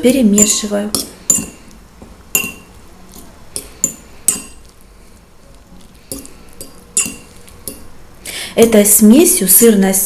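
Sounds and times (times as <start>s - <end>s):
fork clinking on ceramic plate: 2.4s - 2.7s, 6.1s - 7.9s.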